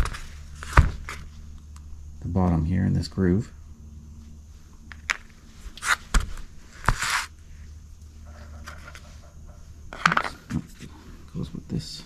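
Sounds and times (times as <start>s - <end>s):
short scrape: 5.7s - 6.2s, 6.8s - 7.3s.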